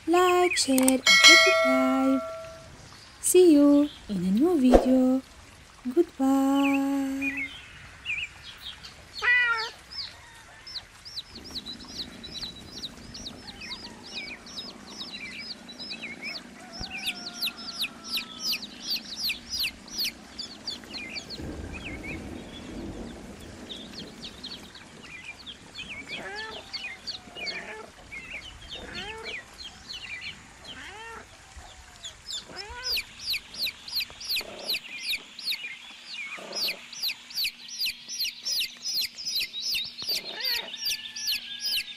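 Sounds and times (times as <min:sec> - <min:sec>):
chicks peeping: 0:14.5 - 0:21.3, 0:32.3 - 0:35.7, 0:36.3 - 0:41.9
lower longer chick calls: 0:36.3 - 0:41.9.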